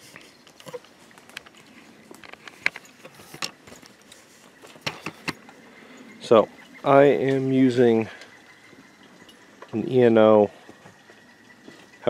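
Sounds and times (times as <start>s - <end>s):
handling clicks and rustles: 0.0s - 5.6s.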